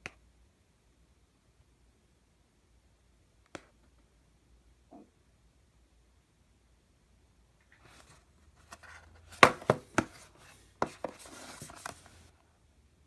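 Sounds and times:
light cardboard rustling: 0:07.7 - 0:12.3
taps and knocks on cardboard box: 0:09.4 - 0:10.2.

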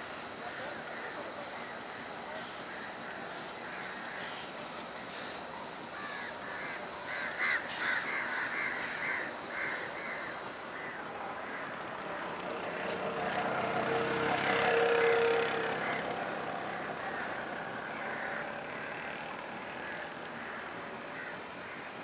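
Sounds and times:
background noise: 0:00.0 - 0:22.0
crows cawing: 0:06.0 - 0:22.0.

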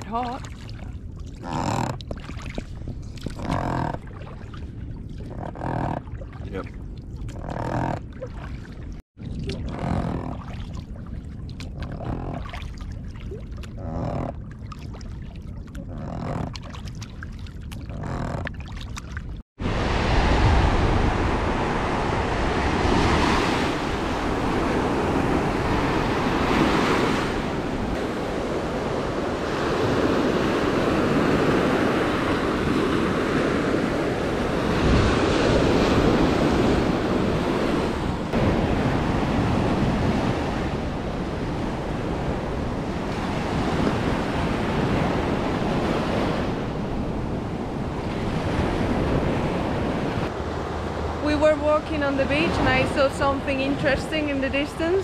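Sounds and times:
small waves breaking on beach: 0:19.6 - 0:55.0.

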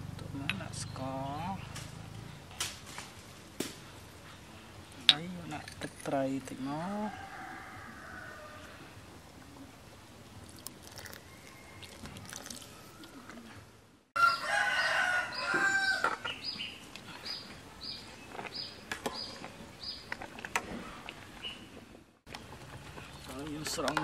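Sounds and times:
rooster crowing: 0:07.0 - 0:08.9, 0:11.0 - 0:13.6, 0:14.2 - 0:16.2.

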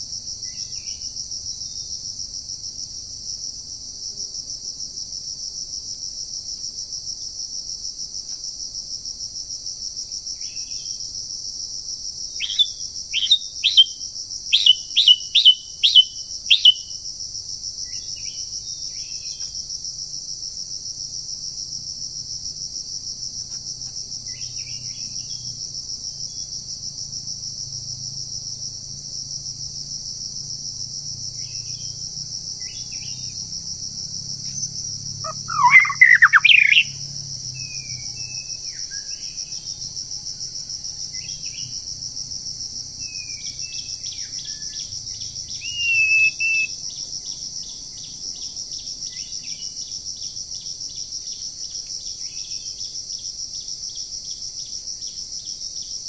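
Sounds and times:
insect drone: 0:00.0 - 0:56.0
faint chirps: 0:35.2 - 0:37.0
bird calling sharp descending notes: 0:35.3 - 0:36.9.

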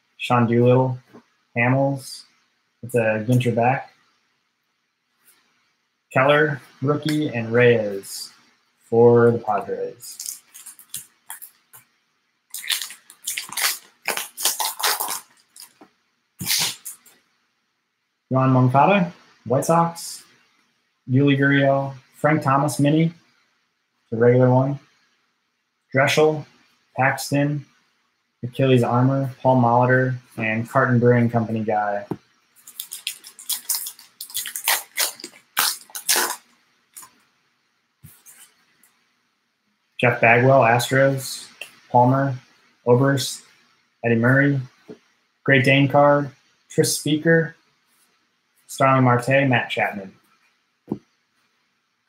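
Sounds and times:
cards rustling: 0:10.0 - 0:11.6, 0:12.6 - 0:17.1, 0:32.6 - 0:37.2
wrapper crinkling: 0:10.1 - 0:11.6, 0:12.5 - 0:15.8, 0:32.6 - 0:37.2.

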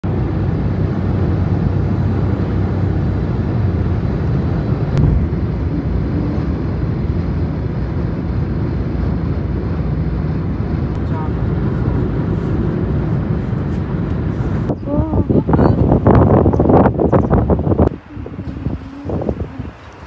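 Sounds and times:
road and engine rumble in car: 0:00.0 - 0:20.0
sharp thump: 0:05.0 - 0:05.5.

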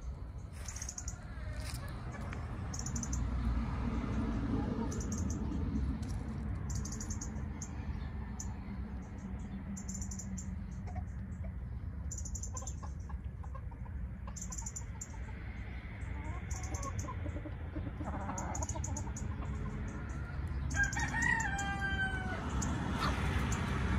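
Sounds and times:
chickens clucking: 0:12.4 - 0:23.8
rooster crowing: 0:19.9 - 0:22.7.

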